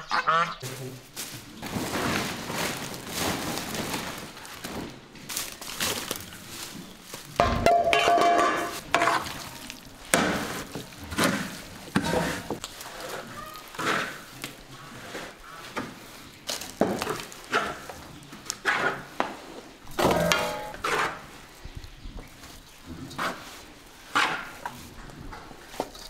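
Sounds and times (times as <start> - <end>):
tool scraping stone trough: 7.4 - 9.4, 10.1 - 16.0, 20.0 - 21.3.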